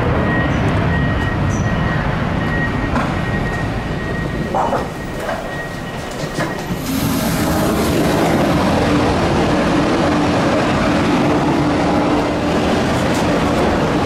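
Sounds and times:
loud machinery rush: 6.7 - 14.0.

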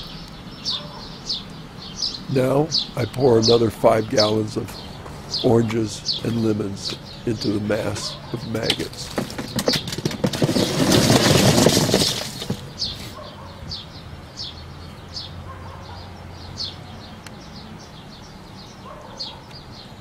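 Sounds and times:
small bird chirping: 0.0 - 9.2, 12.6 - 20.0
fruit clattering into a composter: 8.0 - 13.2.

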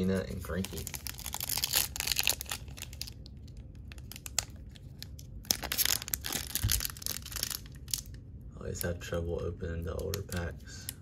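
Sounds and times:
foil wrapper crinkling and tearing: 0.0 - 8.2.

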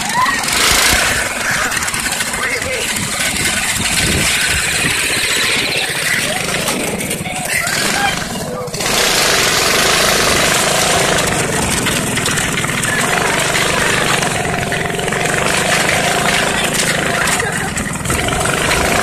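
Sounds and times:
go-kart engine running: 0.0 - 19.0
wind rush on microphone: 2.8 - 6.0.

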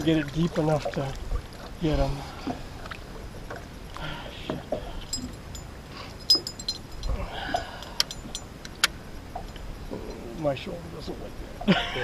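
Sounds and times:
fishing tackle clicks and clinks: 5.0 - 10.3.

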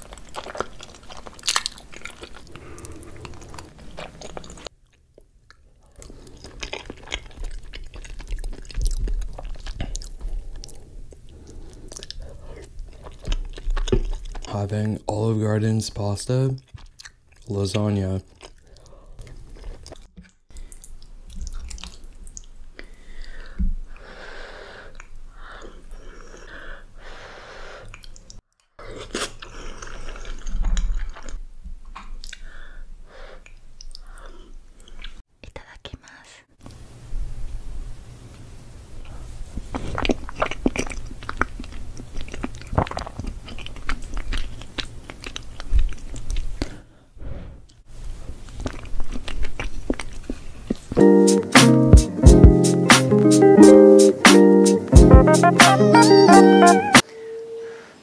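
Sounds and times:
wet chewing: 0.0 - 14.6, 16.6 - 17.6, 18.2 - 23.6, 39.5 - 46.8, 48.3 - 51.3
breathy hiss: 2.4 - 4.2, 22.8 - 28.0.

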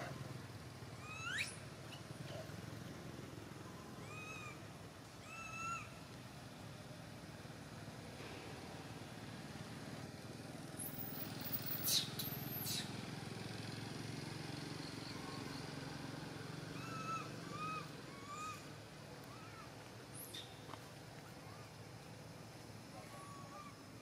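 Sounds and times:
low engine hum: 0.0 - 24.0
baby monkey squealing and whimpering: 1.0 - 1.6, 4.0 - 4.6, 5.2 - 5.9, 16.8 - 18.7.

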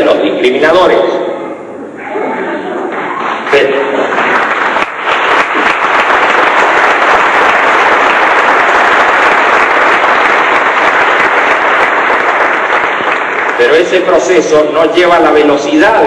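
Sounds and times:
audience applauding: 2.9 - 14.5.

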